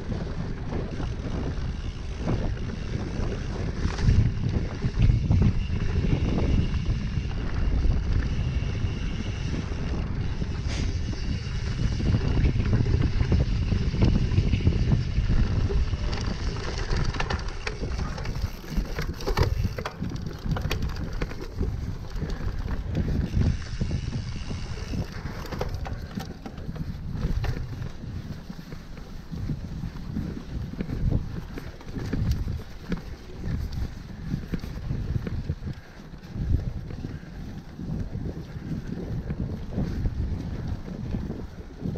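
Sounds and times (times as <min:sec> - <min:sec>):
bike tyres rumbling on dirt: 0:00.0 - 0:41.9
wind buffeting microphone: 0:00.0 - 0:41.9
bike rattling knocks: 0:15.4 - 0:28.8.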